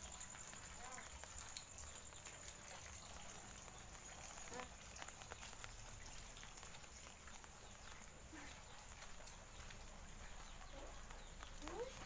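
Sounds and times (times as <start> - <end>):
soft water drips and taps: 0.0 - 12.0.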